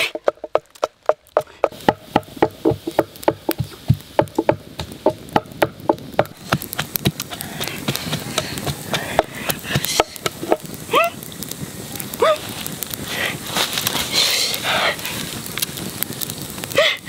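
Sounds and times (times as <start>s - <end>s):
wooden pestle pounding in mortar: 0.0s - 10.7s
wood fire crackling: 0.0s - 17.0s.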